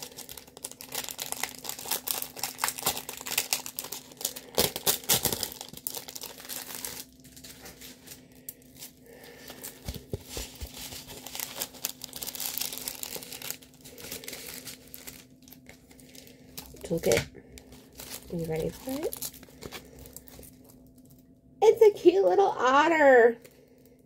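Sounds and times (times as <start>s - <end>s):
plastic packaging crinkling: 0.0s - 21.3s.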